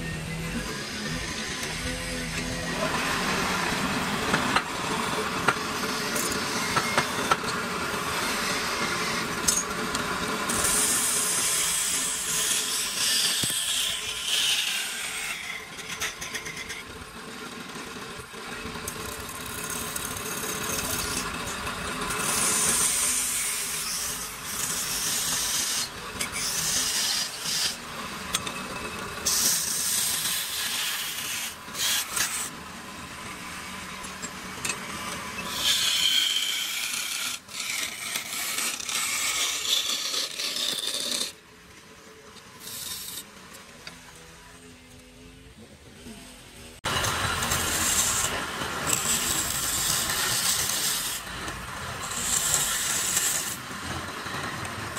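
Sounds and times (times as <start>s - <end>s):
wood lathe humming: 0.0s - 16.7s, 18.5s - 41.4s, 46.8s - 54.9s
turning tool scraping wood: 19.6s - 32.6s, 34.1s - 41.4s, 42.6s - 43.3s, 46.8s - 54.5s.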